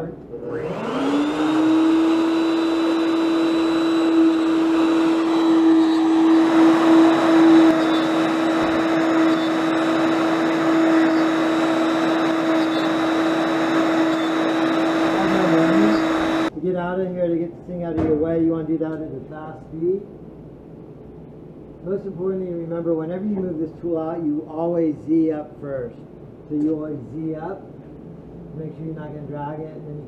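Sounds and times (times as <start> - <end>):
router spindle whine: 0.4 - 16.5
router bit cutting hiss: 0.5 - 16.5.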